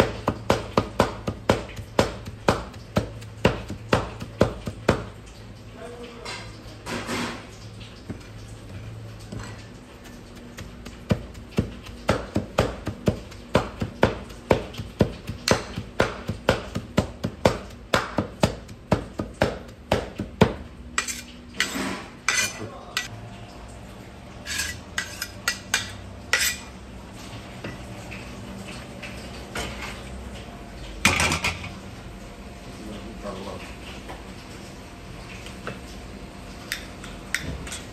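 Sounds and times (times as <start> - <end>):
cleavers chopping meat on wood: 0.0 - 5.1, 10.4 - 20.6.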